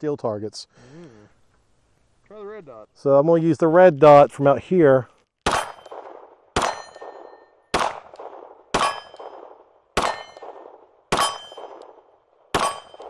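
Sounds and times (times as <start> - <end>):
pistol shots: 5.4 - 13.0
steel target clanging: 5.5 - 5.9, 6.6 - 7.5, 8.8 - 9.4, 10.0 - 11.8, 12.6 - 13.0.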